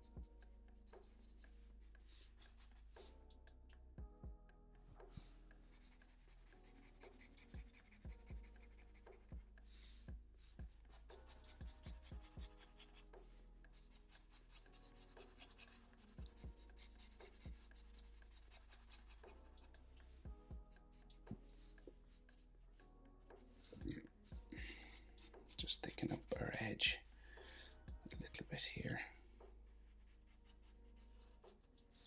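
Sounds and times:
marker scratching on paper: 0.0s - 3.2s, 5.1s - 32.0s.

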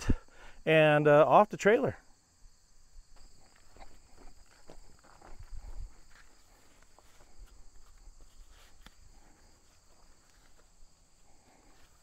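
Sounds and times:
insects chirring: 0.0s - 12.0s
soft clicks and scuffs of movement: 6.1s - 10.8s.

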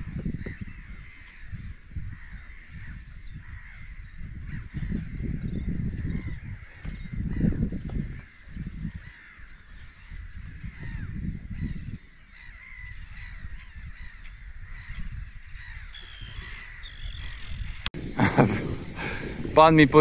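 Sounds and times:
many birds calling: 0.0s - 20.0s.

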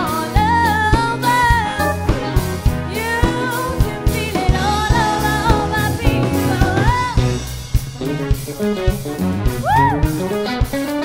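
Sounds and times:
woman singing: 0.0s - 7.4s
bass guitar: 0.0s - 11.0s
drum kit beat: 0.0s - 11.0s
electric guitars: 0.0s - 11.0s.

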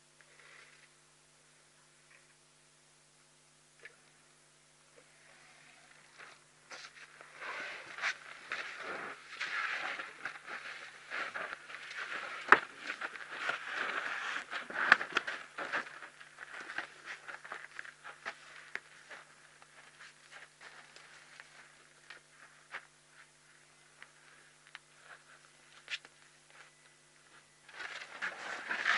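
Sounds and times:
elephant scraping and rustling: 7.3s - 16.1s, 27.8s - 28.9s.

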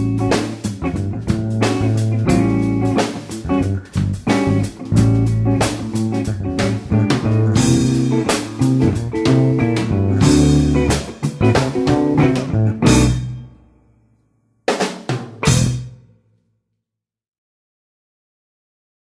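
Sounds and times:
band with drums and guitar: 0.0s - 13.8s, 14.7s - 16.1s.

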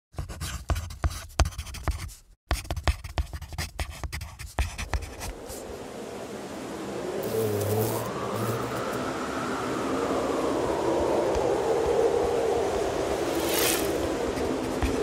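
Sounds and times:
pen scratching on paper: 0.1s - 5.2s
faint hiss: 4.9s - 15.0s.

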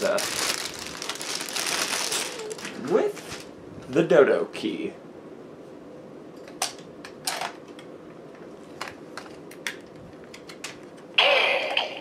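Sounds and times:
plastic wrapping crinkling: 0.0s - 3.5s.

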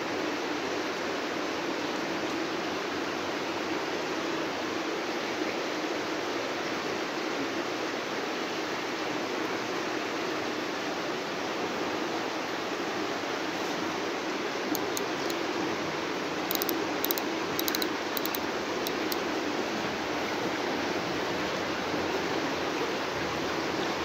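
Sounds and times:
light high clicks: 14.8s - 15.4s, 16.5s - 19.3s.

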